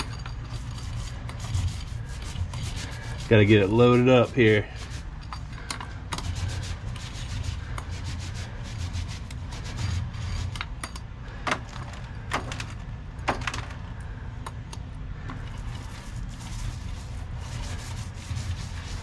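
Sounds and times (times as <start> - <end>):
paint roller rubbing with clicks: 0.0 - 10.7, 15.3 - 19.0.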